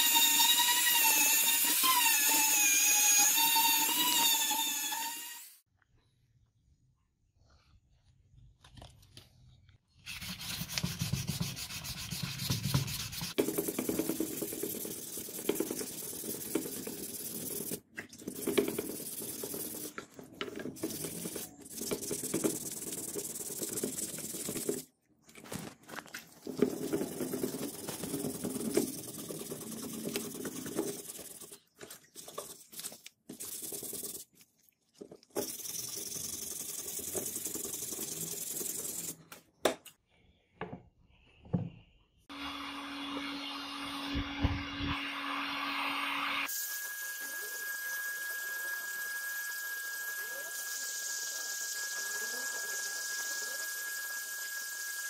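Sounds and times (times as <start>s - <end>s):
sandpaper rasping on wet wood: 10.1s - 20.0s, 20.8s - 24.8s, 26.6s - 34.3s, 35.4s - 39.2s.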